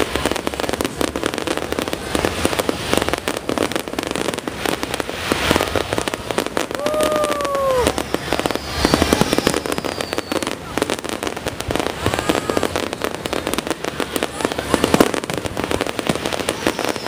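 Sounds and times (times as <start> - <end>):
fireworks bangs and crackling: 0.0 - 17.0
firework whistle dropping in pitch: 5.4 - 13.2, 16.3 - 17.0.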